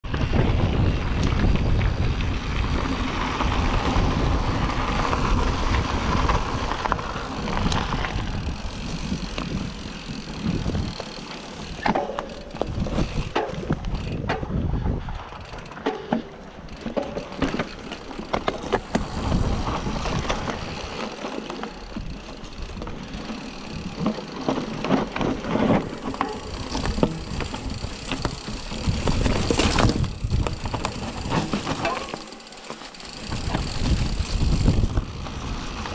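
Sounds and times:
wind buffeting microphone: 0.0 - 15.8, 18.5 - 21.1, 25.1 - 31.9, 33.2 - 35.9
bicycle tyre noise: 0.0 - 35.9
bike clicks and rattles: 0.0 - 35.9.

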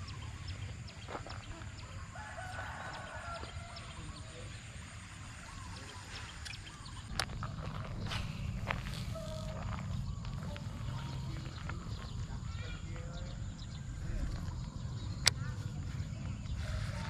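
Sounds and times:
rooster crowing: 2.1 - 4.3
steady low rumble: 3.7 - 17.0.

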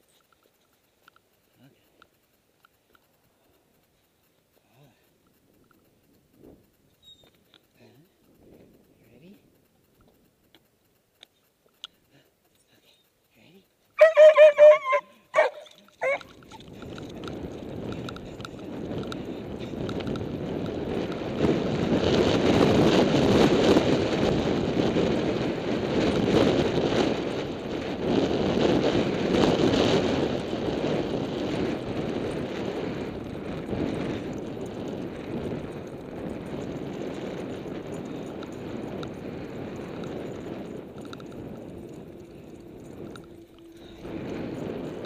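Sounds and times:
bicycle road noise: 0.0 - 45.0
wind rushing over microphone: 14.0 - 45.0.

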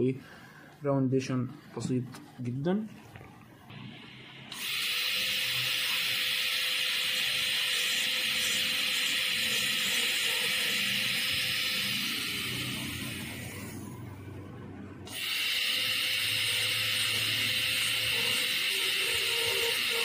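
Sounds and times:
dental drill hissing: 3.8 - 13.9, 15.1 - 20.0.

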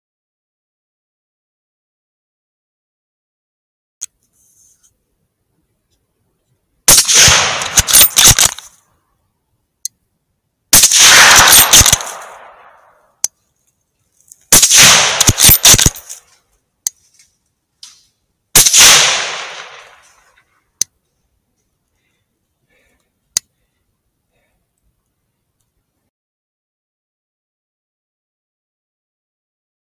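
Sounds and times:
rifle shots echoing: 6.9 - 8.7, 10.7 - 13.0, 14.5 - 16.1, 18.6 - 20.1
sharp clicks: 6.9 - 8.8, 10.8 - 13.4, 14.3 - 16.2.

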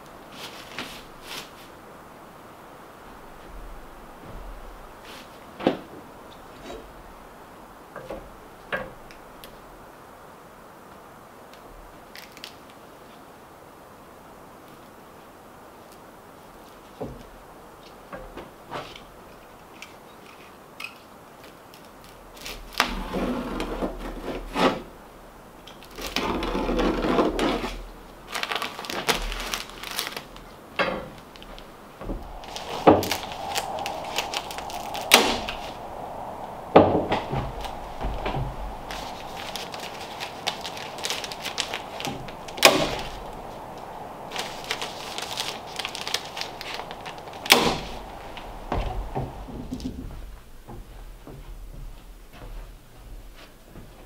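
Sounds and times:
insulation rustling: 25.7 - 54.0.

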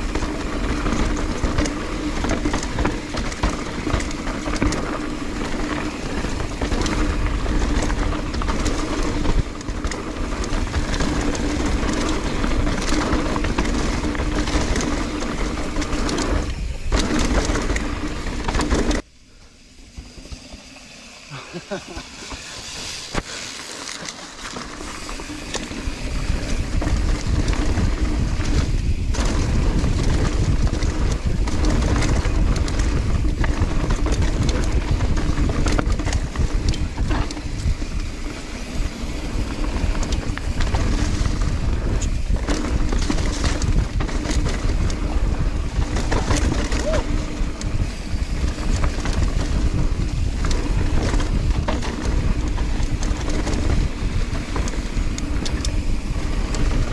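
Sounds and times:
tyres rumbling over dirt: 0.0 - 19.1, 19.9 - 56.9
bike clicks and rattles: 0.0 - 56.9
wind buffeting microphone: 25.3 - 56.9.

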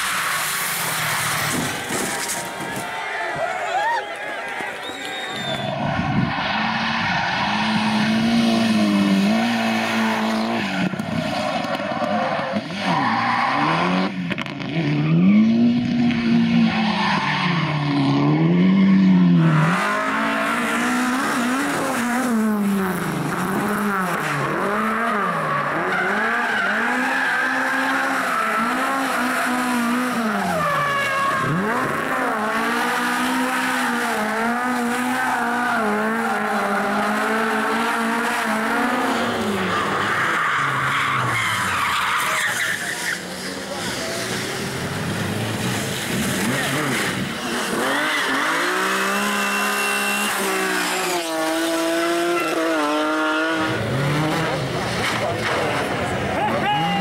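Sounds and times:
tyres squealing and skidding: 0.0 - 14.2, 15.0 - 57.0
rally car engines revving: 0.0 - 57.0.

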